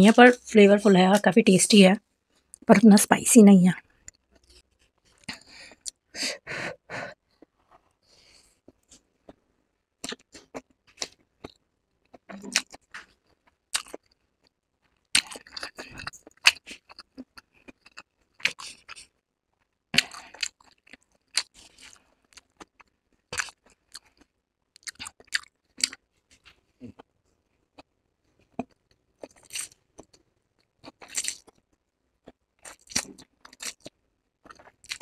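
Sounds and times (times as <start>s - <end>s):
chewing and slurping noodles: 14.8s - 19.2s, 20.0s - 27.1s, 27.8s - 30.2s, 30.8s - 31.6s, 32.2s - 35.0s.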